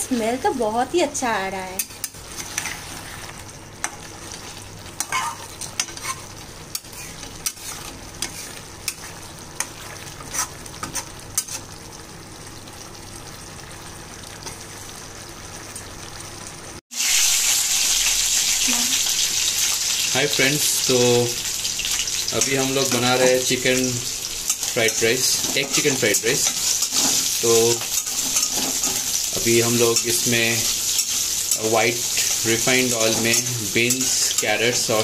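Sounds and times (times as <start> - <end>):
low sizzle: 0.0 - 35.0
spatula scraping a pan: 1.8 - 11.8, 24.5 - 35.0
loud frying hiss: 16.9 - 35.0.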